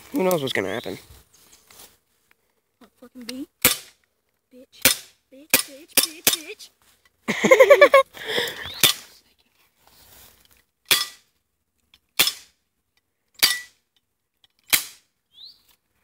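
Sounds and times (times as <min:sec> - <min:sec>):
bb pistol shots: 0:14.7 - 0:15.1.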